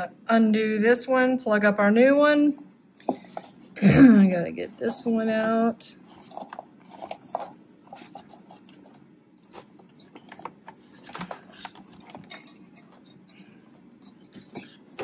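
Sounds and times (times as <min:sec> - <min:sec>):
hands handling small plastic parts: 0:06.0 - 0:15.0.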